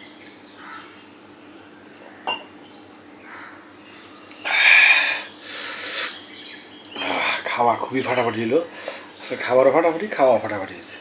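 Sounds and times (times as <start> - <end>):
man breathing out hard: 4.5 - 6.2.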